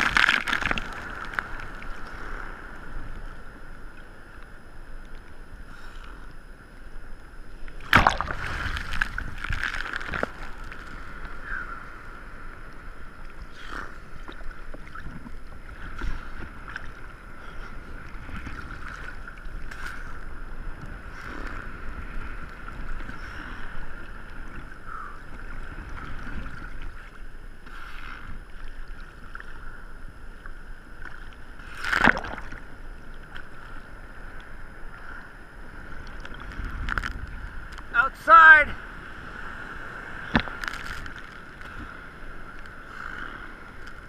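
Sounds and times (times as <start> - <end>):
water splashes: 0.0 - 2.8, 7.6 - 29.7, 31.0 - 33.9.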